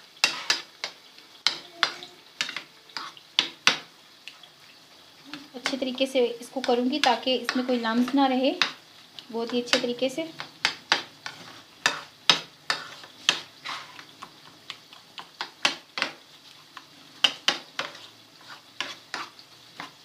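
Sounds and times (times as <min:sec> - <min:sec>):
utensil clicking and scraping dish: 0:17.2 - 0:20.0.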